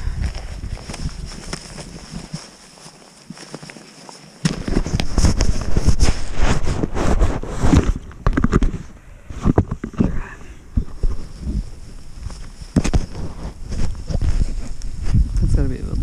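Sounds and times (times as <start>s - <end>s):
loud crackling and rustling: 0.0s - 10.0s.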